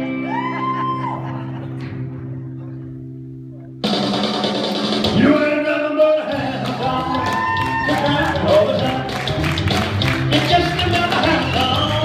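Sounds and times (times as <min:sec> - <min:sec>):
rock and roll band playing: 0:00.0 - 0:02.4, 0:03.0 - 0:12.0
drums and cymbals crashing: 0:03.8 - 0:05.6.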